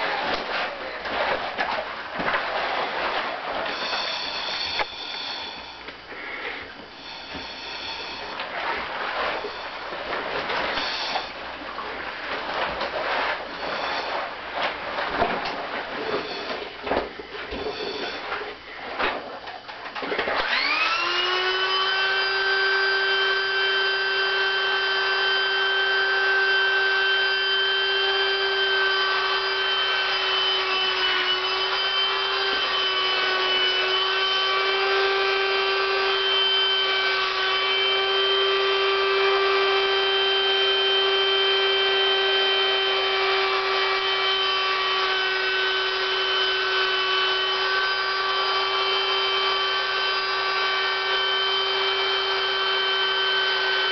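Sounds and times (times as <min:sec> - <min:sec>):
electric air pump whining: 0:00.0 - 0:19.2, 0:20.0 - 0:53.9.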